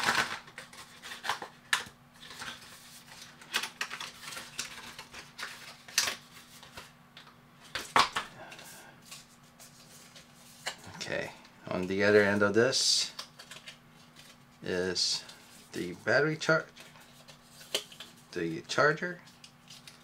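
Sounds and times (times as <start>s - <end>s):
cardboard packaging rustling: 0.0s - 6.9s
faint steady hum: 0.0s - 20.0s.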